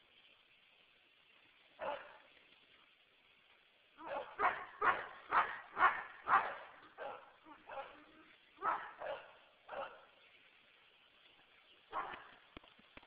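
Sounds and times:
dog barking: 1.8s - 2.2s, 4.0s - 10.2s, 11.9s - 12.4s.

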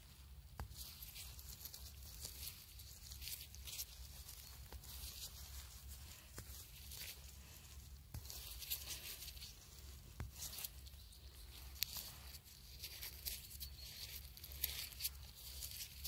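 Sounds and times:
rustling of wet moss and leaves: 0.0s - 16.0s.

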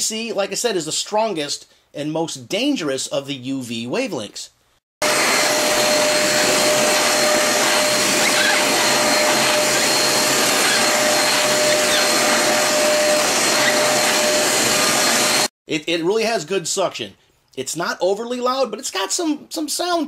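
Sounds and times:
handheld vacuum cleaner running: 5.0s - 15.5s.

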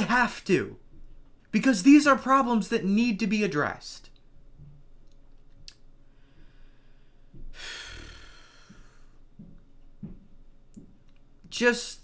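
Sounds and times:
faint breathing: 6.0s - 9.3s
man sighing: 7.5s - 9.2s.

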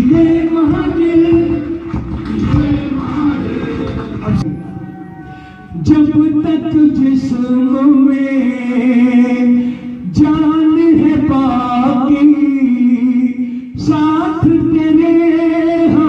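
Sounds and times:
instrumental accompaniment: 2.4s - 6.6s
person singing long wavering notes: 4.4s - 11.3s.

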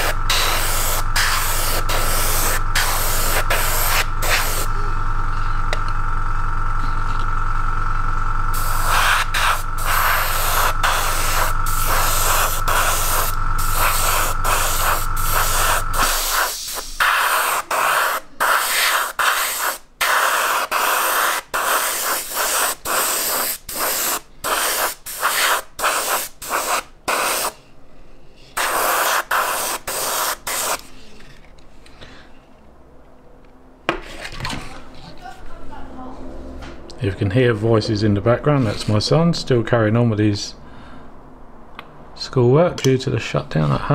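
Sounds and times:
airbrush spraying hiss: 0.0s - 4.8s, 8.5s - 27.6s, 28.5s - 30.8s
air compressor humming: 0.0s - 27.6s, 28.5s - 31.0s.

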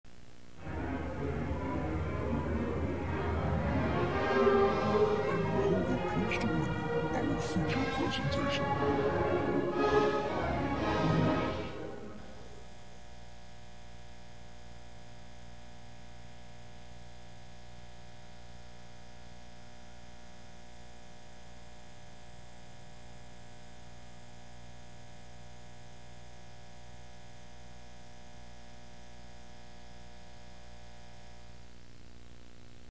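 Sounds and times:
faint tape hiss: 0.1s - 32.9s
orchestral music: 0.6s - 12.8s.

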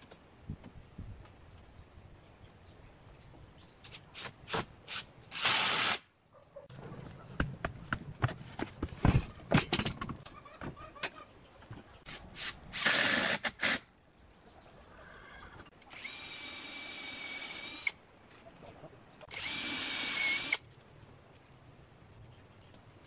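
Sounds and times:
cordless drill driving screws: 15.9s - 18.0s, 19.3s - 20.6s.

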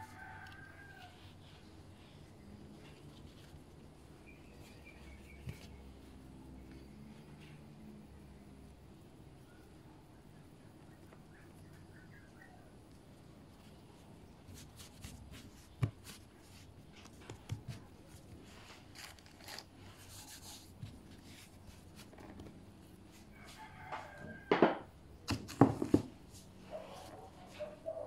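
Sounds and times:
rooster crowing: 0.0s - 1.4s, 23.3s - 24.9s.

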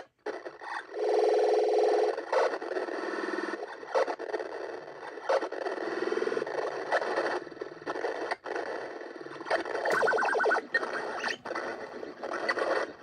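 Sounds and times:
buzzy electronic tone: 9.4s - 13.0s
short sharp electronic blips: 9.5s - 11.4s.

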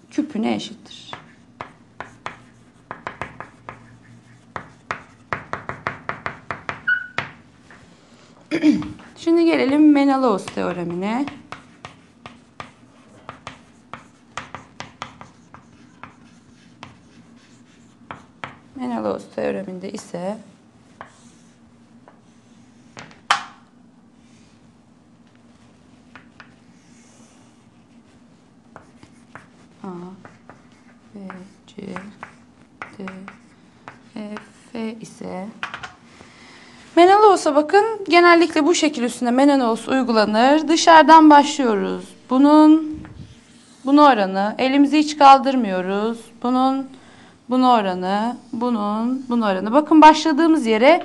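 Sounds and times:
steady low hum: 0.0s - 51.0s
scratchy chalk strokes: 1.1s - 7.1s, 9.0s - 18.7s, 25.4s - 34.8s
chalk tapping on chalkboard: 1.1s - 7.9s, 8.9s - 18.8s, 20.9s - 22.2s, 26.1s - 34.7s, 35.6s - 36.0s.

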